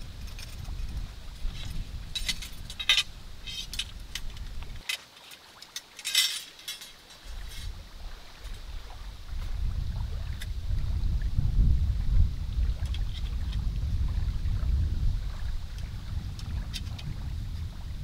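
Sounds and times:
wind rumble on microphone: 0.0 - 4.8, 7.2 - 18.0
metal poles clinking and rattling: 0.0 - 7.7.

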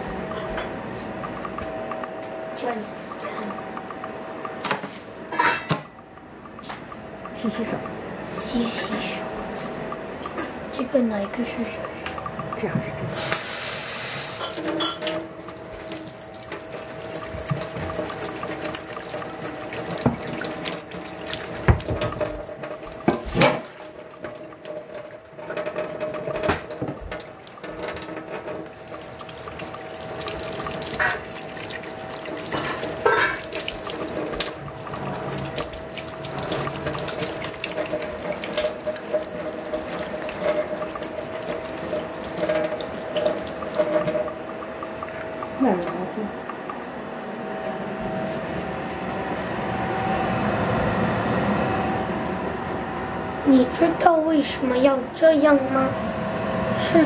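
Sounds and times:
faucet running into steel sink: 12.5 - 46.7.

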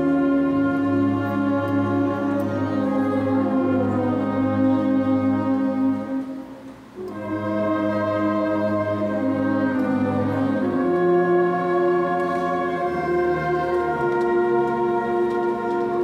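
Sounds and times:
brass band playing a hymn: 0.0 - 16.0.

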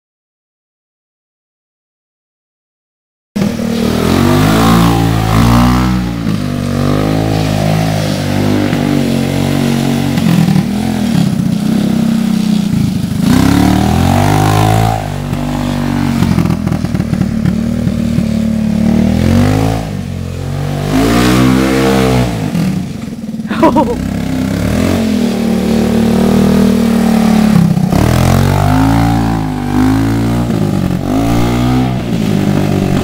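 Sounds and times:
quad bike engine revving: 3.4 - 33.0.

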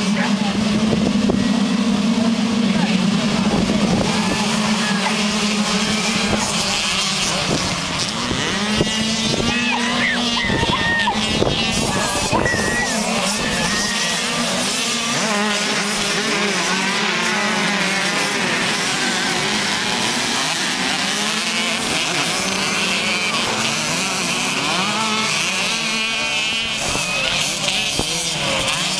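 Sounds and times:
motocross bike engines revving: 0.0 - 28.9.

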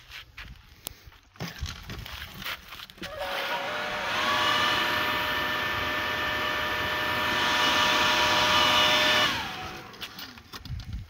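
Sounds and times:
blower motor whine and air rush: 3.0 - 10.6.

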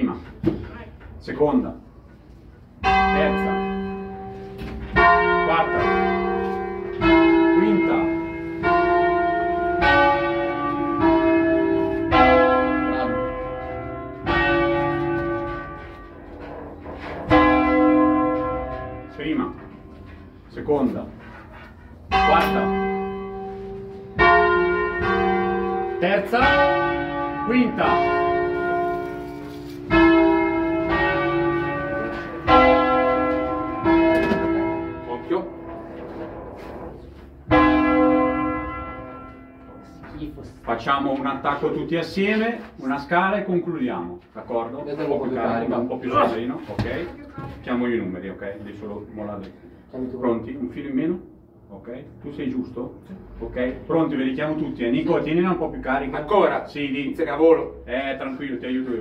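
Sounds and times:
church bells ringing: 2.7 - 43.8.

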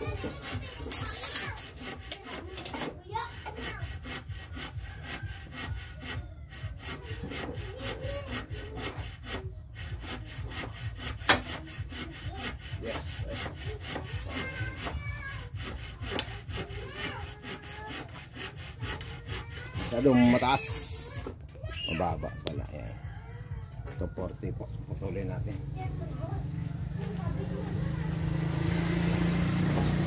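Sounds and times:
hand saw cutting wood: 0.0 - 22.5, 28.9 - 30.0.

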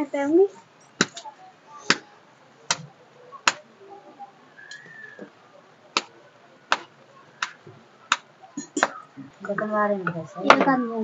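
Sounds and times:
dough slapped between palms: 1.0 - 1.2, 2.7 - 3.6.

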